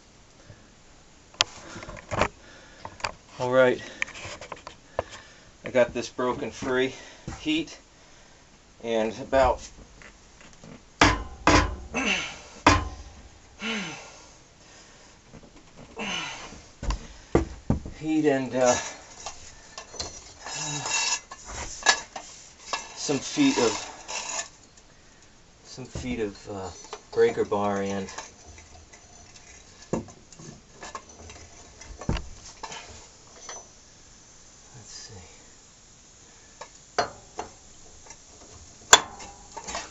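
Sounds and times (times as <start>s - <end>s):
man sighing: 11.9s - 12.6s, 13.6s - 14.3s, 16.0s - 17.2s.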